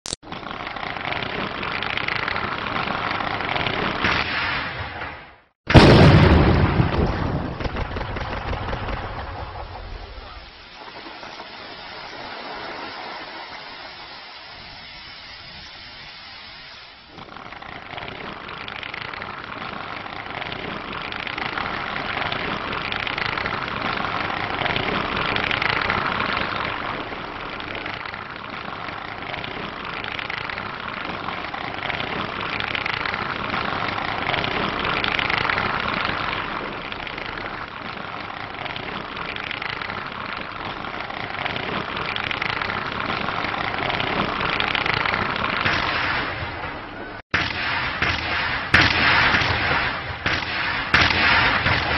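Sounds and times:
dense crackling noise: 0.0s - 51.9s.

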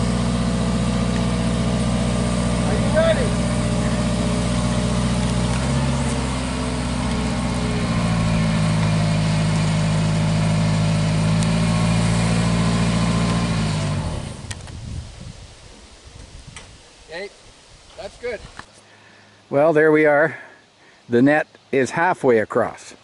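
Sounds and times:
boom lift engine running: 0.0s - 14.7s.

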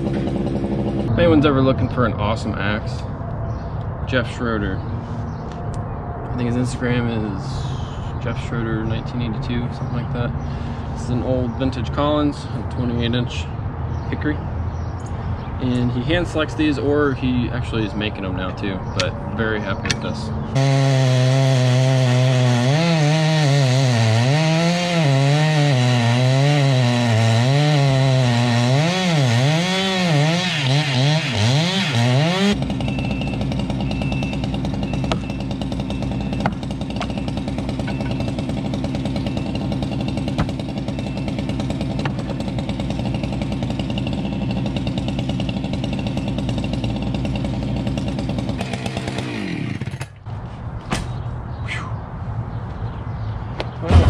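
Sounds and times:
chainsaw cutting: 0.0s - 1.2s, 20.5s - 50.2s
engine running steadily: 0.0s - 3.1s, 32.4s - 50.2s.

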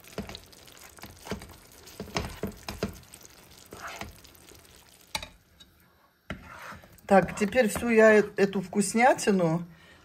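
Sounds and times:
spatula scraping a frying pan: 0.0s - 5.4s, 6.3s - 8.4s.

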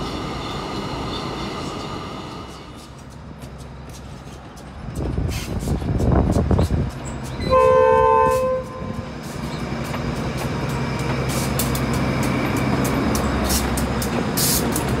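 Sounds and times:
loud rail noise: 0.0s - 15.0s
train running: 0.0s - 15.0s
train horn blast: 7.4s - 9.0s.

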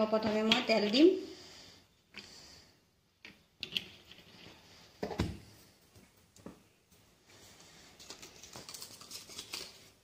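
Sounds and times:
soft knocks and handling: 3.2s - 7.1s.

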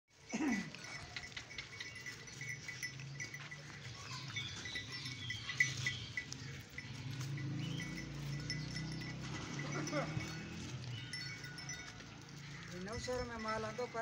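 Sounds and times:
goats rustling through plastic bags: 10.2s - 14.0s.

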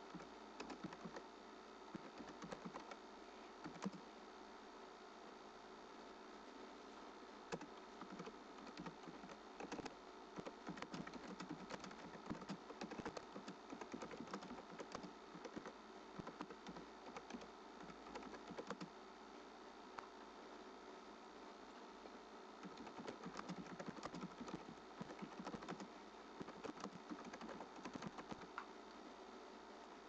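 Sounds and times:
keyboard typing: 0.0s - 1.2s, 1.9s - 3.0s, 3.6s - 4.0s, 7.5s - 18.9s, 22.6s - 28.6s
faint steady hum: 0.0s - 30.0s.

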